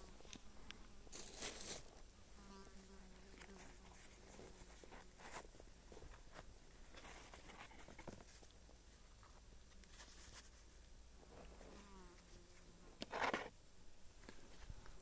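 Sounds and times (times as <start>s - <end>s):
faint insect buzz: 0.0s - 8.3s, 8.9s - 15.0s
soft ticks and rustles: 3.1s - 13.5s, 14.2s - 15.0s.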